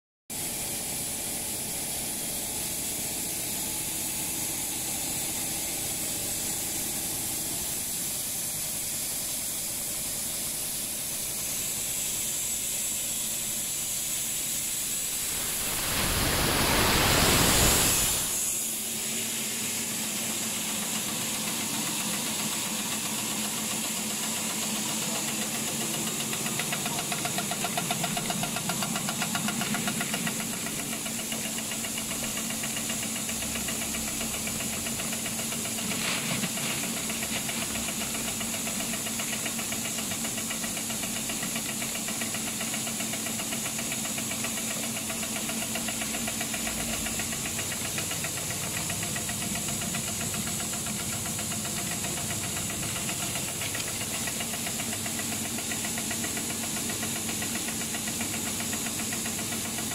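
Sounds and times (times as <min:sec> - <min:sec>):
machine hum with hiss: 0:00.3 - 0:59.9
loud rushing noise: 0:14.8 - 0:19.1.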